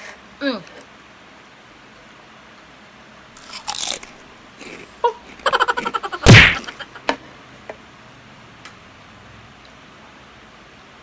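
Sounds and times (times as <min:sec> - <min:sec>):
eating crunch: 0:03.4 - 0:07.0
punch-style whack: 0:06.2 - 0:06.8.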